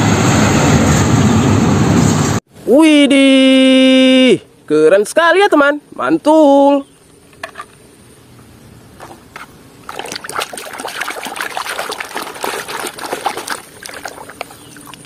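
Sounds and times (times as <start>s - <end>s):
water splashing in plastic basin: 9.8s - 15.0s.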